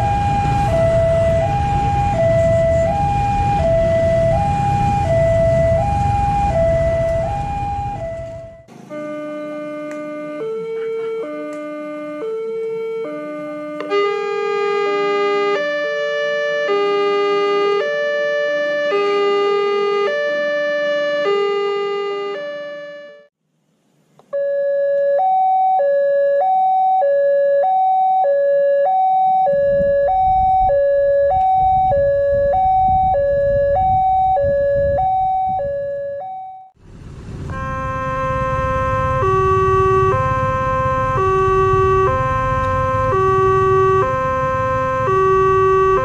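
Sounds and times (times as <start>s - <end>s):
two-tone warning alarm: 0.0s - 23.3s, 24.3s - 36.8s, 37.5s - 46.0s
low rumble: 36.8s - 43.0s.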